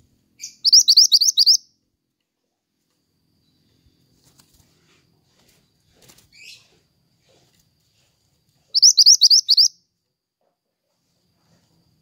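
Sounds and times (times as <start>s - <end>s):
bird calling: 0.4s - 1.7s, 8.7s - 9.8s.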